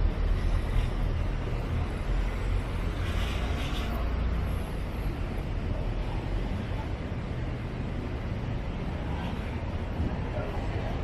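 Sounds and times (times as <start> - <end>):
vehicle passing hiss: 0.0 - 6.6
traffic rumble: 0.0 - 11.0.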